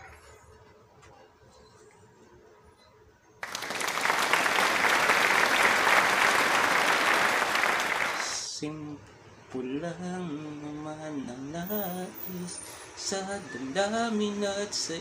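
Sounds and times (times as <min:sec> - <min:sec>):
crowd applause: 0:03.4 - 0:08.4.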